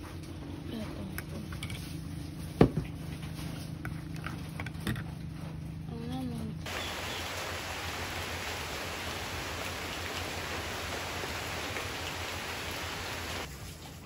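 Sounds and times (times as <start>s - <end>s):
rain on foliage: 6.6s - 14.0s.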